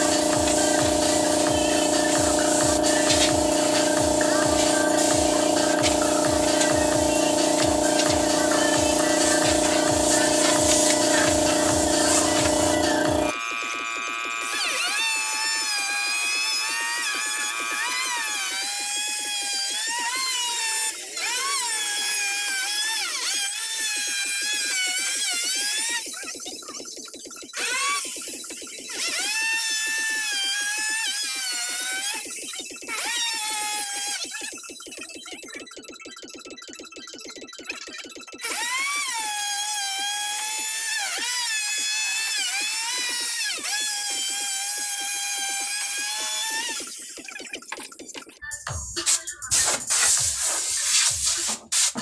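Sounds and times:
electric router cutting wood: 0.0 - 26.3, 27.6 - 34.6, 38.4 - 47.2.

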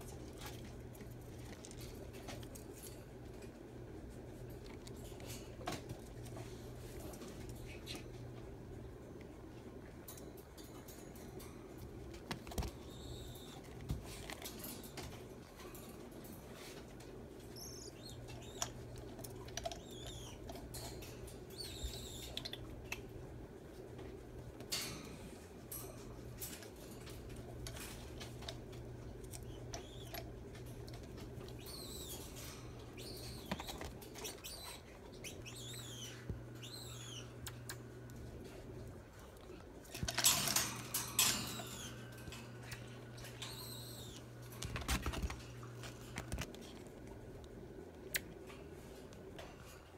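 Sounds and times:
steady low hum: 0.0 - 49.9
marmosets chirping: 12.6 - 13.7, 17.4 - 22.7, 29.2 - 37.8, 41.1 - 44.4.

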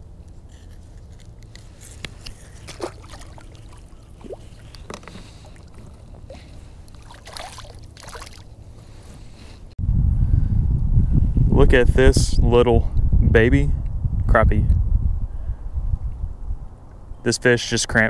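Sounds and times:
steady low rumble: 0.0 - 17.2
water sloshing and dripping: 2.2 - 8.6.

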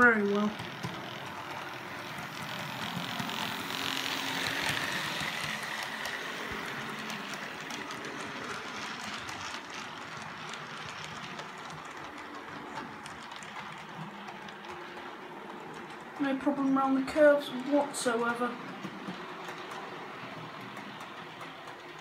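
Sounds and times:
model train motor whir: 0.0 - 14.8
wheels clicking over rail joints: 0.0 - 22.0.

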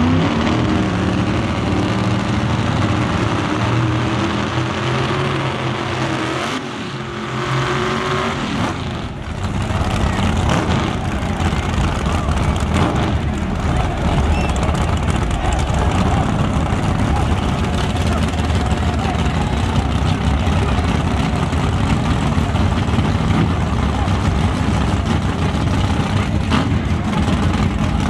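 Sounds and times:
drag racing engines revving: 0.0 - 28.0
tyres spinning in burnout: 8.8 - 28.0.

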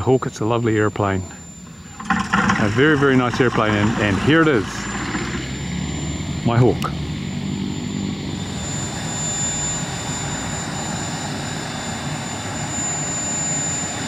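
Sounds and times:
jet turbine whine: 0.0 - 14.0
rushing jet noise: 2.0 - 12.8.

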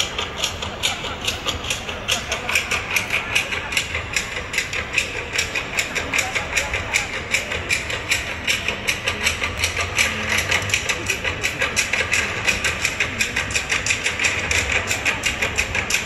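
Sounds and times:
crowd murmuring: 0.0 - 16.0
fast percussive strikes: 0.0 - 16.0.

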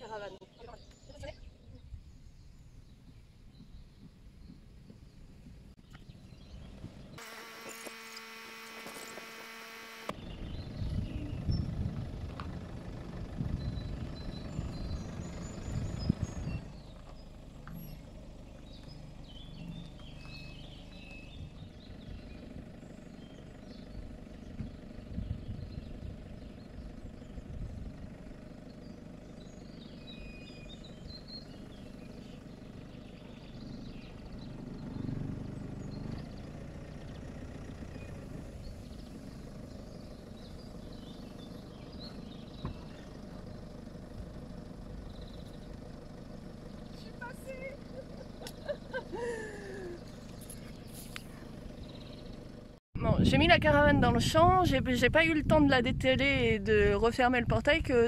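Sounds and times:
van engine low rumble: 0.0 - 58.0
faint bird chirps: 13.5 - 35.1.

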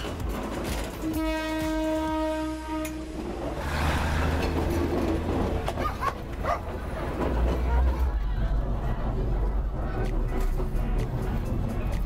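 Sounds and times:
railcar engine and wheels rumbling: 0.0 - 12.0
train horn blast: 1.0 - 3.2.

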